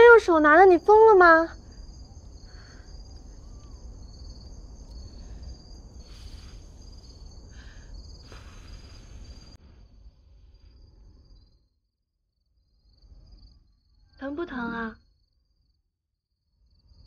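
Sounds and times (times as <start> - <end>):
crickets chirping: 0.0 - 17.0
puffs of breath: 5.0 - 9.9.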